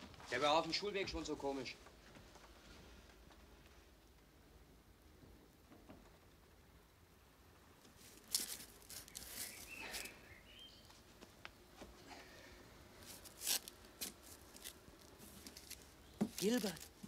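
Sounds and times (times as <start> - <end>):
faint rustling: 7.8 - 17.0.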